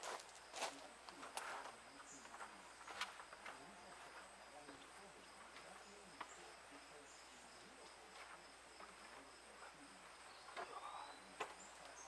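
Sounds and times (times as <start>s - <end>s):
distant voices: 0.0s - 12.0s.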